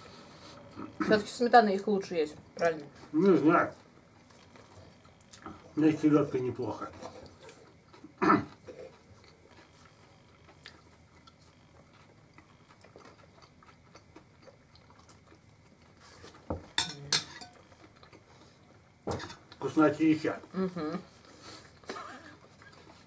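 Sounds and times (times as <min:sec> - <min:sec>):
forks tapping on plates: 0:16.5 - 0:17.6.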